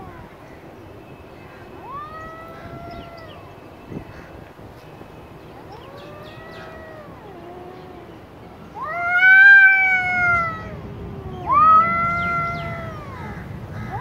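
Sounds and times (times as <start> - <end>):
cats yowling: 1.8 - 3.5, 5.6 - 14.0.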